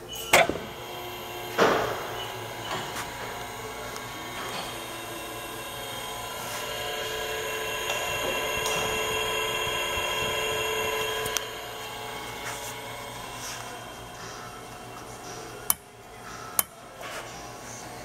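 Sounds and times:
electric motor whine: 0:00.0 - 0:18.0.

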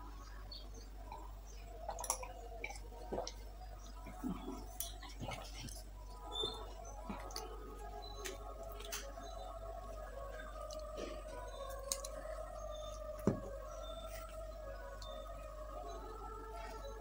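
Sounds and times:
sipping and swallowing: 0:01.1 - 0:07.6.

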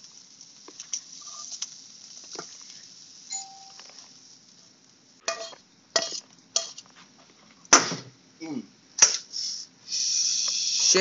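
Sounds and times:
utensil clattering in frying pan: 0:05.2 - 0:06.9.

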